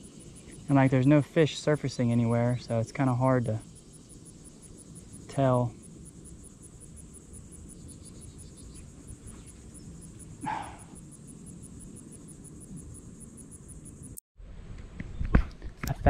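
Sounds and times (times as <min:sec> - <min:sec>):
insects chirping: 0:00.0 - 0:14.2
faint outdoor ambience: 0:00.0 - 0:16.0.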